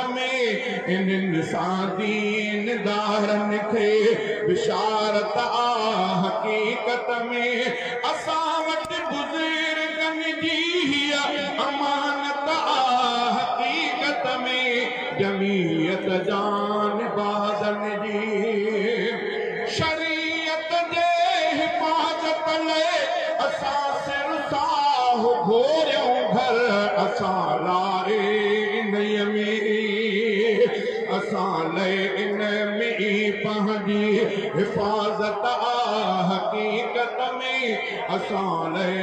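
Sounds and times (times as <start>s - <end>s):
man chanting through microphone: 0.0s - 39.0s.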